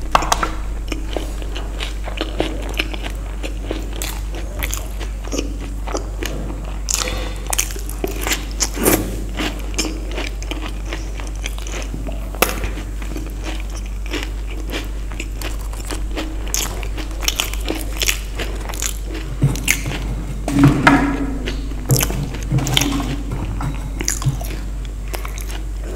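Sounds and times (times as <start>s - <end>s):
crunchy snack chewing: 0.0s - 20.4s, 21.4s - 25.9s
steady low hum: 0.0s - 25.9s.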